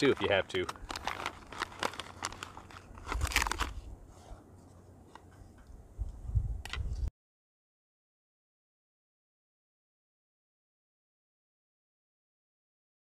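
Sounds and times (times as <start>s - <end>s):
food pouch crinkling: 0.0s - 3.9s.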